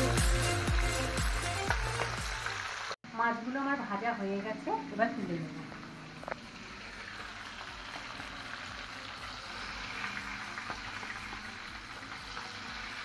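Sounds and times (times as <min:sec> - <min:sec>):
hot oil sizzling and popping: 0:00.0 - 0:13.0.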